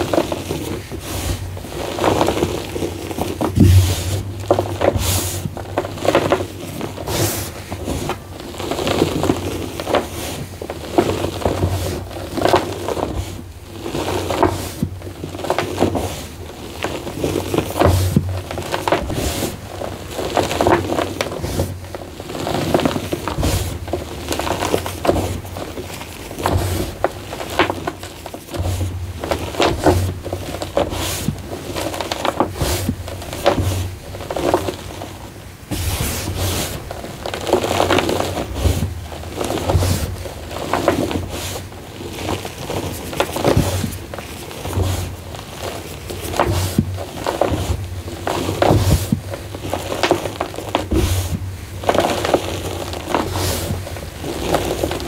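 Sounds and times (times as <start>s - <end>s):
chalk and sand crunching: 0.0s - 55.0s.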